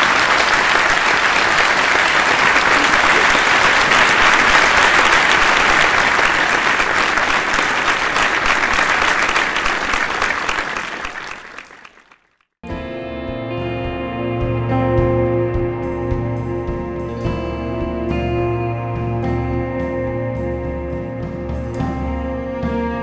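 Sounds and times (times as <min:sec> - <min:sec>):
audience applauding: 0:00.0 - 0:12.5
instrumental background music: 0:12.7 - 0:23.0.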